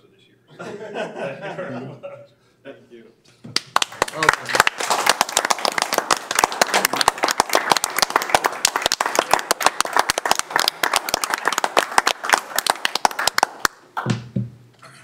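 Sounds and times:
people applauding: 3.6 - 14.2.

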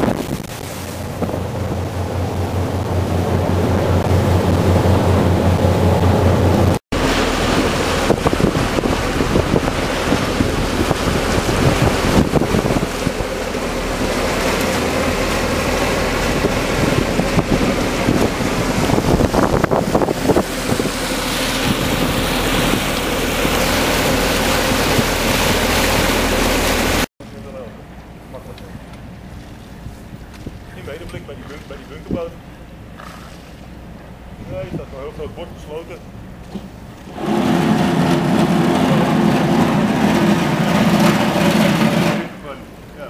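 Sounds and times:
hull knocking on waves: 0.0 - 27.1, 36.4 - 42.4
wind on microphone: 0.0 - 27.1
rushing water: 0.0 - 27.6, 36.6 - 43.0
motorboat engine: 0.0 - 43.0.

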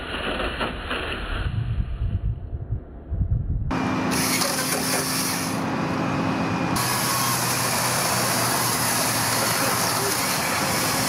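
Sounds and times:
low wind rumble: 1.1 - 4.2
steady low hum: 1.4 - 7.7
tree-trimming machinery running: 3.7 - 11.0.

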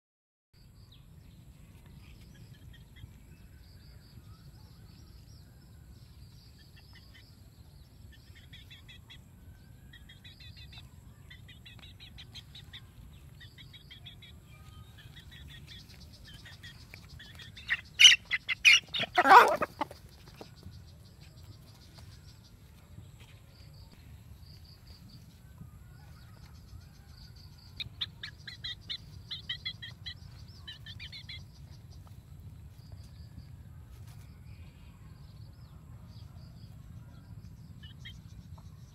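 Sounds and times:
chick peeping: 9.9 - 20.6, 27.4 - 32.2
chickens squawking: 16.4 - 20.2.

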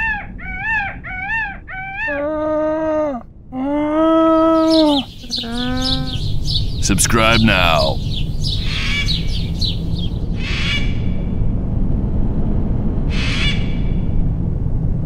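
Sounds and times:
bird chirps: 4.5 - 10.2
parrot squawks: 4.6 - 6.6.

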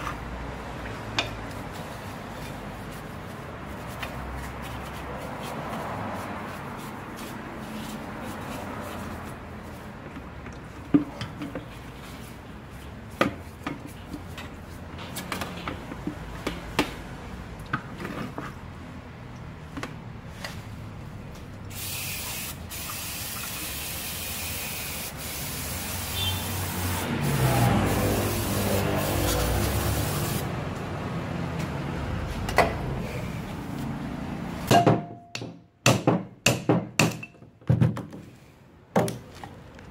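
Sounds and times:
cleaner spray hissing: 21.7 - 30.5.

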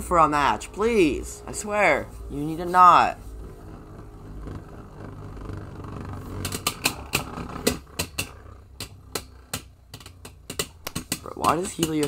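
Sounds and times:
spinning tops whirring: 0.6 - 12.0.

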